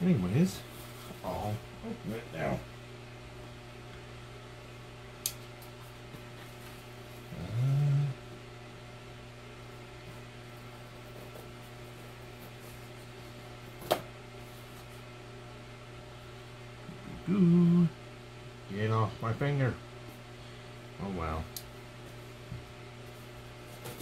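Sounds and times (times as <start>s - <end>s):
steady low hum: 0.0s - 24.0s
person humming: 7.3s - 8.3s, 16.9s - 18.0s.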